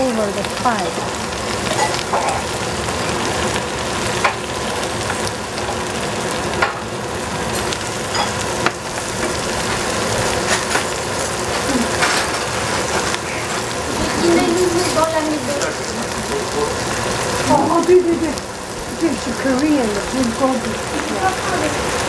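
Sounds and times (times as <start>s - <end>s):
oil sizzling in a frying pan: 0.0s - 22.0s.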